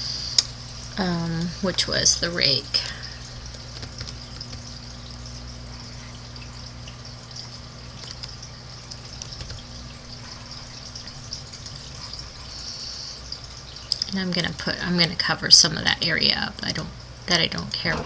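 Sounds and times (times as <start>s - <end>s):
even hiss: 0.0s - 4.5s, 11.9s - 14.0s
low electrical hum: 0.0s - 18.0s.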